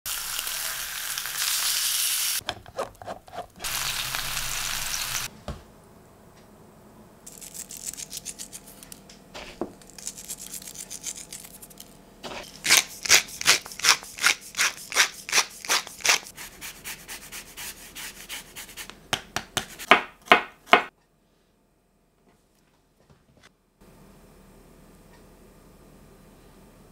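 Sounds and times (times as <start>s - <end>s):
meat sizzling in a grill pan: 0.1s - 2.4s, 3.6s - 5.3s.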